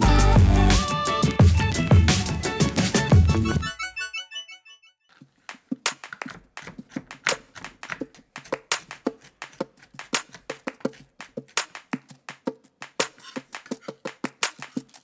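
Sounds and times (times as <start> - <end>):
knife chopping on wooden board: 5.8 - 11.6.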